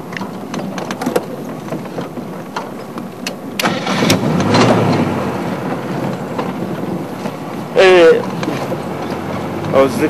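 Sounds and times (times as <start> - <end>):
vehicle engine running: 3.6 - 10.0.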